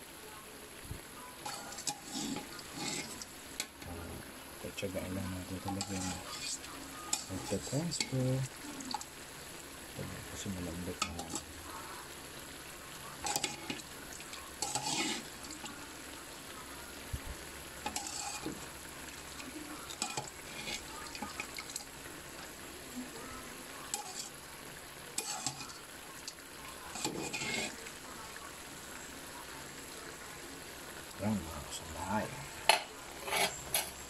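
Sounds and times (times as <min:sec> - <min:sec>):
faint steady sizzle: 0:00.0 - 0:34.0
stirring scrapes against wok: 0:01.4 - 0:03.3, 0:05.6 - 0:08.1, 0:13.2 - 0:13.8, 0:14.5 - 0:15.6, 0:17.8 - 0:18.7, 0:19.9 - 0:21.8, 0:23.9 - 0:24.4, 0:25.1 - 0:25.9, 0:26.8 - 0:27.9, 0:33.0 - 0:34.0.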